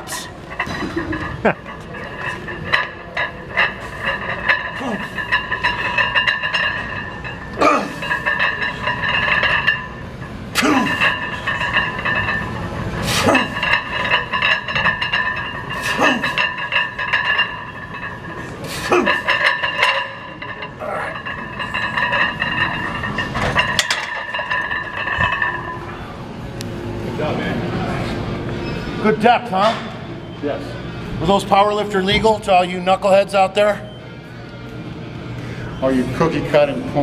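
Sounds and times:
gym background music: 0.0 - 37.0
man grunting: 7.6 - 8.0.

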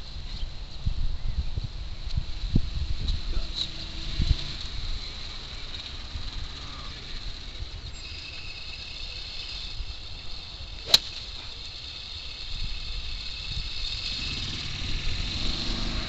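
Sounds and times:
steady high whine: 1.6 - 16.0
golf club striking: 10.0 - 13.4.

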